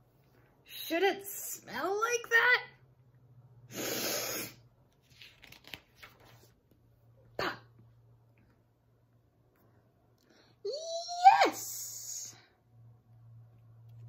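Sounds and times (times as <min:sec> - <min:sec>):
person sniffing loudly: 0:03.7 - 0:04.6
book pages rustling: 0:04.9 - 0:06.8.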